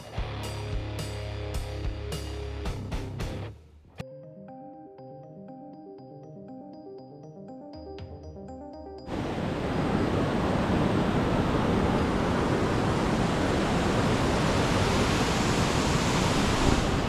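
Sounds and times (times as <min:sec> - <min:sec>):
stream rushing over boulders: 0:09.1 - 0:17.0.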